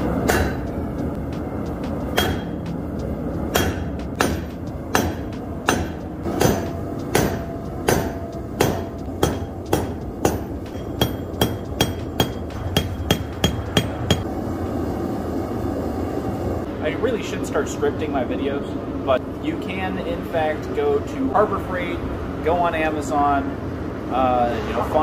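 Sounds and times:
sledgehammer striking hot steel: 0.0s - 0.8s, 2.0s - 2.7s, 3.5s - 14.3s.

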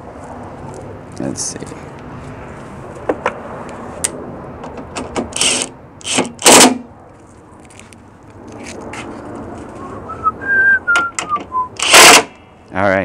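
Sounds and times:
cordless power driver whirring: 5.4s - 6.6s.

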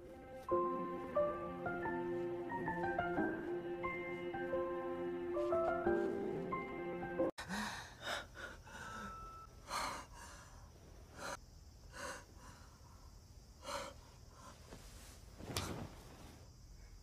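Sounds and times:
soft background music: 0.0s - 7.3s
heavy breathing and gasps: 7.4s - 13.0s.

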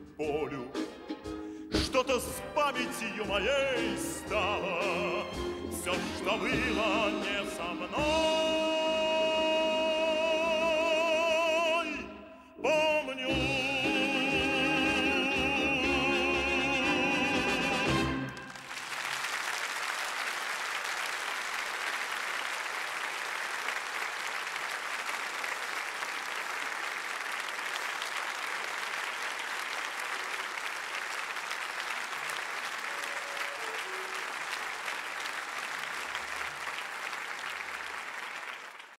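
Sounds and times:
audience applauding: 17.8s - 39.0s.

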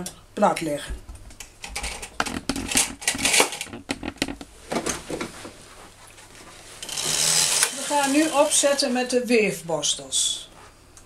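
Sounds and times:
knitting machine parts clattering: 1.6s - 4.4s, 6.8s - 8.9s.

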